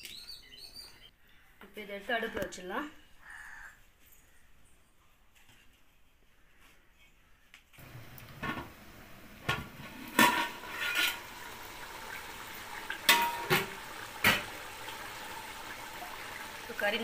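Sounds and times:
chicken simmering hiss: 7.8 - 17.0
metal lid and spoon clanking on pot: 10.0 - 11.3, 13.0 - 14.5.

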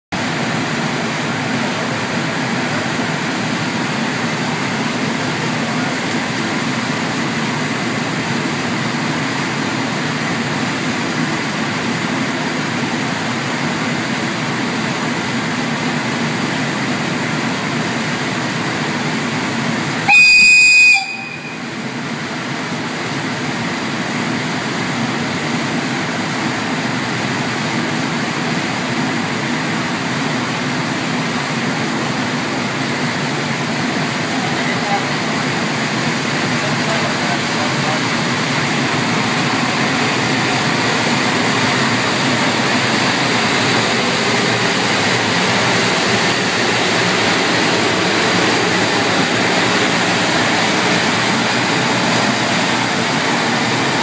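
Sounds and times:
electric locomotive humming: 0.2 - 54.0
high-pitched horn blast: 20.1 - 21.7.

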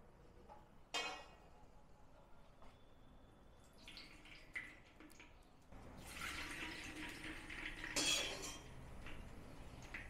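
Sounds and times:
oil trickling into clay pot: 3.6 - 8.0.

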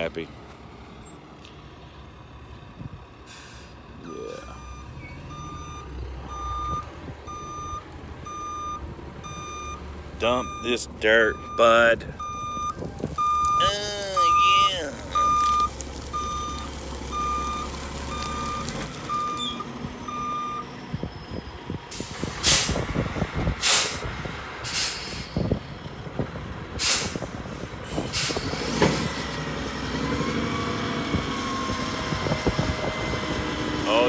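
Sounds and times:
truck engine running: 0.1 - 34.0
reversing alarm beeping: 4.1 - 20.7.

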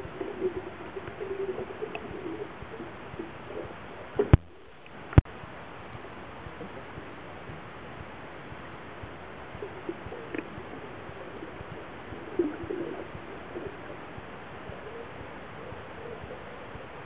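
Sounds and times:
low hoot-like sounds: 5.4 - 17.0.

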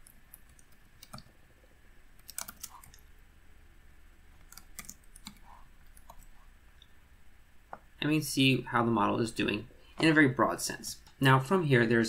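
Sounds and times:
computer keyboard keystrokes: 0.0 - 1.3, 2.2 - 3.0, 4.4 - 6.3.

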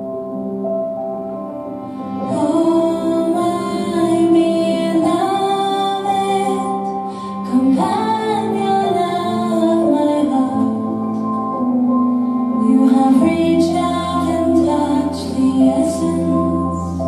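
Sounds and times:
music: 0.0 - 17.0
woman singing long notes: 12.6 - 17.0.

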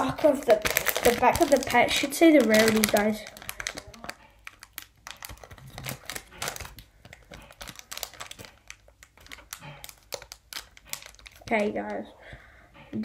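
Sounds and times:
foil pack crinkling: 0.0 - 12.1.

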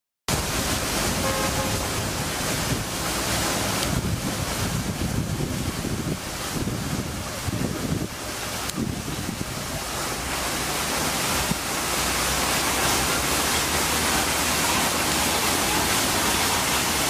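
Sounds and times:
wind buffeting microphone: 0.4 - 10.0.

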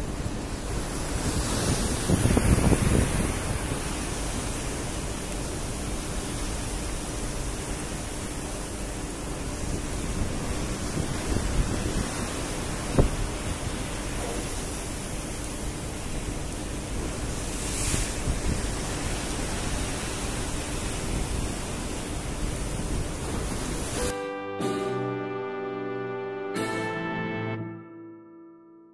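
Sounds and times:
choppy sea: 0.0 - 24.2
wind buffeting microphone: 0.1 - 4.4, 9.7 - 14.8.

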